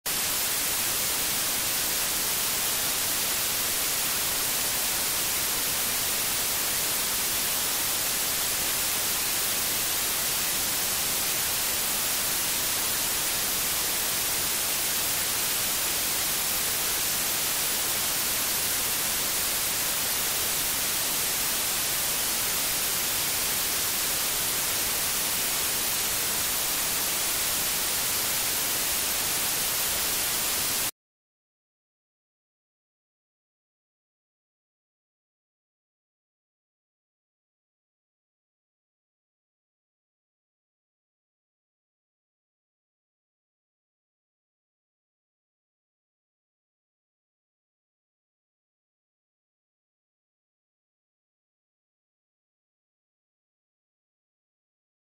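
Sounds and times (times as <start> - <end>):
white noise hiss: 0.1 - 30.9.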